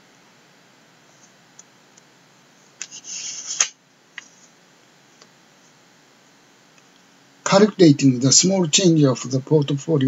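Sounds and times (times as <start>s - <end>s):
scratchy rustle: 2.8s - 4.6s.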